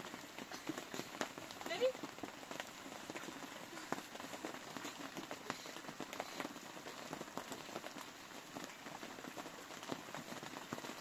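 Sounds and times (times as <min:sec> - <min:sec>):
rain pattering on plastic sheet: 0:00.0 - 0:11.0.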